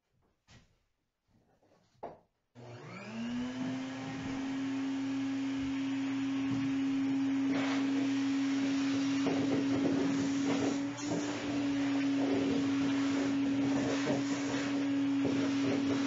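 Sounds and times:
shop vacuum running: 2.6s - 16.0s
hose sucking debris: 6.4s - 16.0s.

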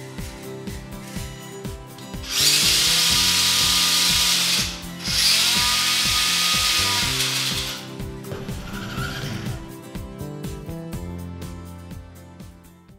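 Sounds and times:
background music with beat: 0.0s - 12.9s
electric motor whirring: 2.2s - 7.9s, 8.6s - 9.6s.

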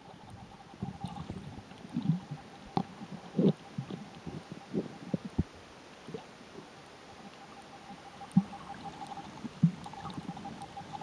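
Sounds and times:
faint steady hum: 0.0s - 11.0s
underwater thumps and gurgles: 0.8s - 6.3s, 8.3s - 11.0s.

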